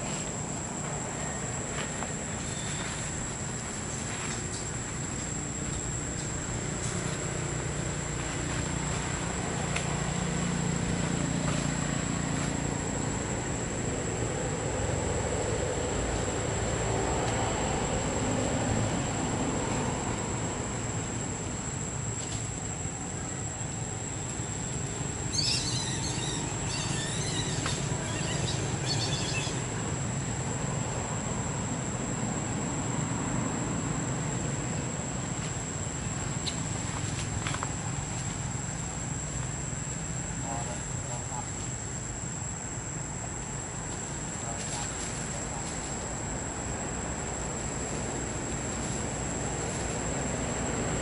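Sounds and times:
insect whine: 0.0s - 51.0s
birds chirping: 24.7s - 29.8s.

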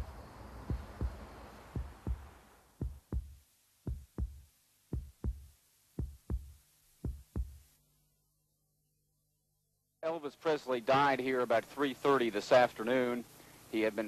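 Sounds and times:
heartbeat thumps: 0.0s - 7.7s.

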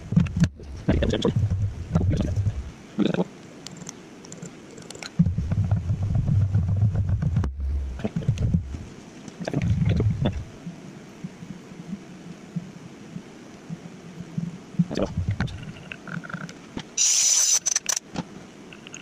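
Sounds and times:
milling machine rumbling: 5.2s - 10.6s.

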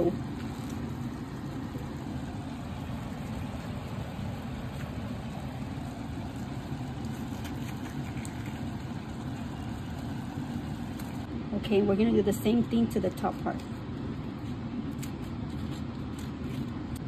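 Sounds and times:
kitchen appliance humming: 0.0s - 11.3s.

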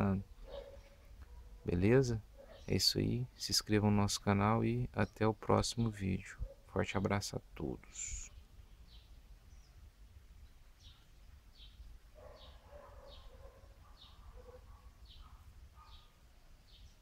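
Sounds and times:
bird high chirp: 0.4s - 1.6s, 2.4s - 3.4s, 10.4s - 17.0s.

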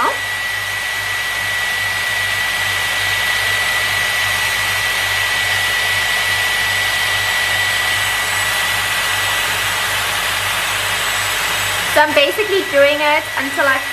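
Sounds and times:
hair styler blowing air: 0.0s - 13.9s
motor whine: 0.0s - 13.9s.

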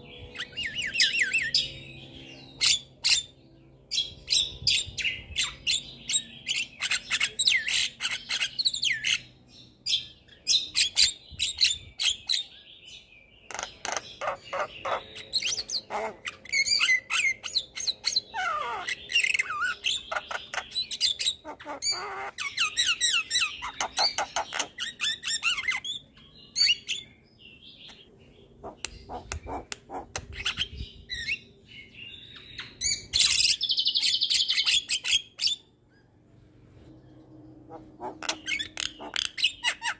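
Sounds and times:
bird song with clicks and whistles: 13.4s - 27.2s, 32.1s - 36.1s, 38.0s - 39.9s.

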